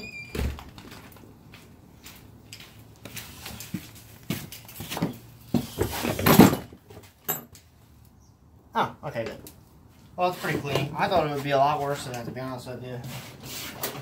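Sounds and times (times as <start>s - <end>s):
rustling scrape: 13.0s - 14.0s.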